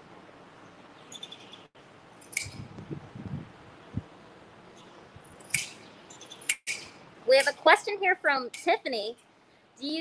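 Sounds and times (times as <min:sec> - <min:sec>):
shears blades clicking: 0:02.2 - 0:02.6, 0:05.4 - 0:07.7.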